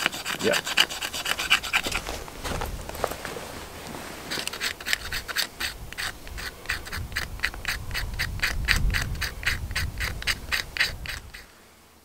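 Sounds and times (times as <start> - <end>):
knife scraping wood shavings: 0.0 - 2.2, 4.1 - 11.5.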